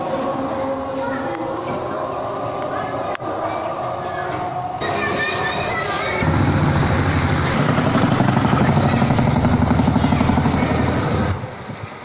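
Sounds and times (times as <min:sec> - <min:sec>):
vehicle engine running: 0:06.2 - 0:11.6.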